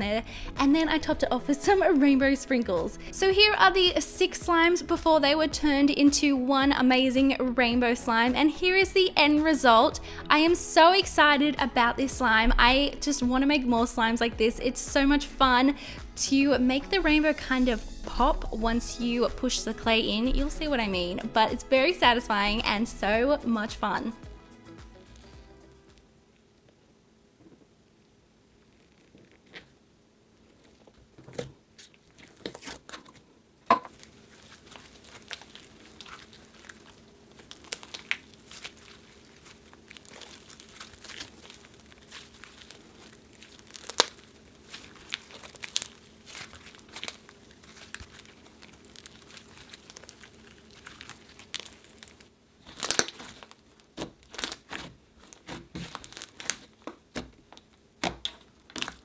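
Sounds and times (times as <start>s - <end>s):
hands kneading sticky slime: 33.9s - 59.0s.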